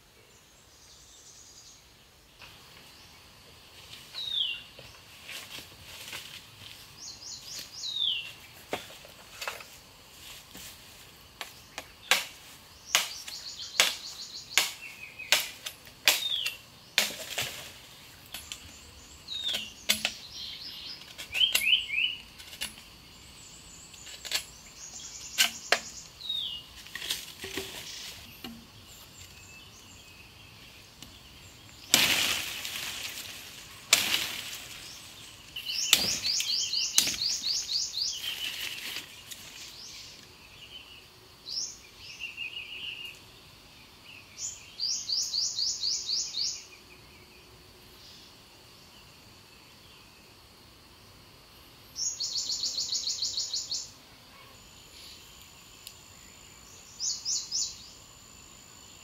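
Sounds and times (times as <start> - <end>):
forest birds calling: 0.0 - 50.5, 51.5 - 59.0
branches clicking and snapping: 11.4 - 18.7, 31.8 - 40.3
machete slicing a branch: 12.0 - 17.7, 19.4 - 20.2, 21.0 - 22.8, 31.9 - 35.0, 35.8 - 37.6.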